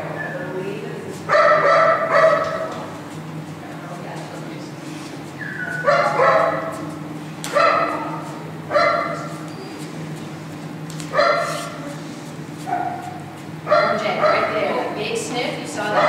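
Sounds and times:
steady low hum: 0.0 - 16.0
dog barking: 1.3 - 2.8, 5.5 - 6.8, 7.5 - 9.4, 11.1 - 11.8, 12.6 - 14.6.

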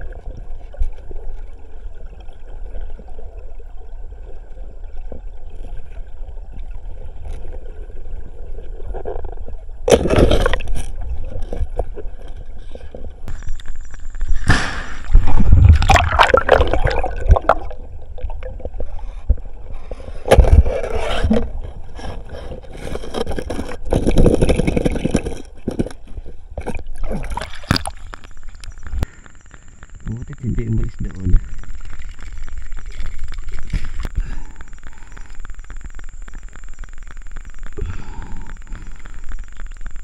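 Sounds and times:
water splashing: 9.9 - 18.8, 26.6 - 29.8, 30.8 - 40.0.

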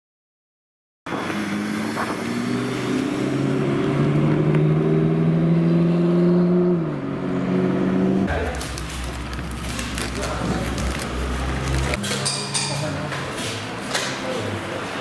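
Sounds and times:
car engine accelerating: 1.1 - 8.4.

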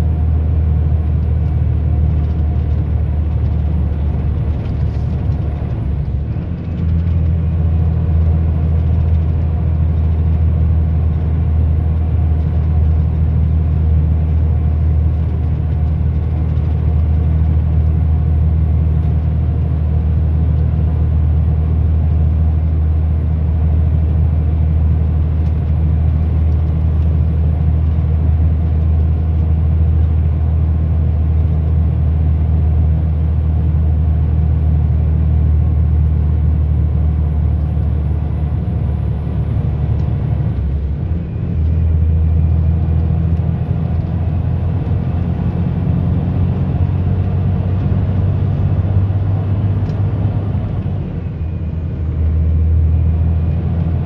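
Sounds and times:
engine and road drone: 0.0 - 54.0.

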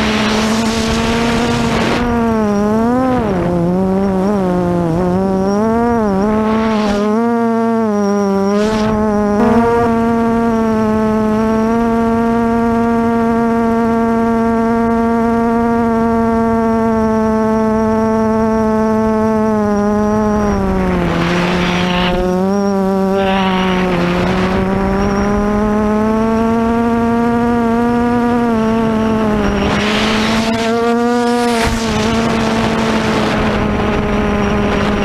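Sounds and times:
wind rush: 0.0 - 3.7
quadcopter motors humming: 0.0 - 35.0.

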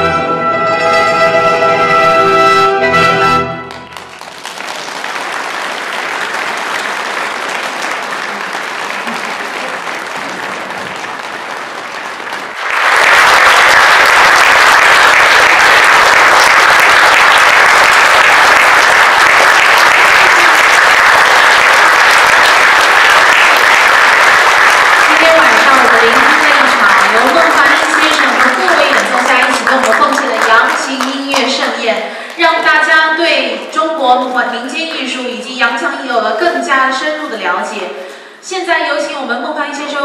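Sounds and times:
audience applause: 3.6 - 32.4.

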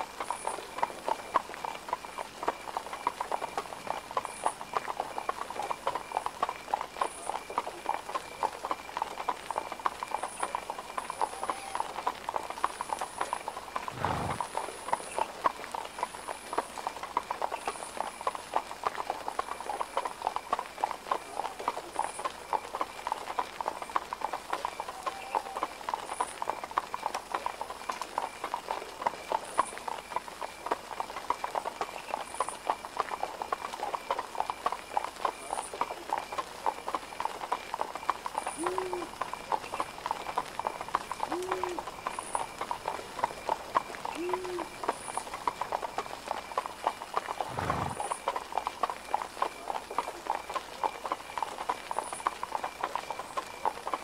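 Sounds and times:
horse hooves clip-clopping: 0.0 - 54.0.

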